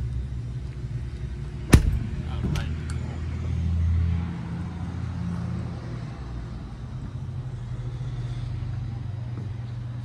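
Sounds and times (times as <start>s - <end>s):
low mechanical hum: 0.0s - 4.1s.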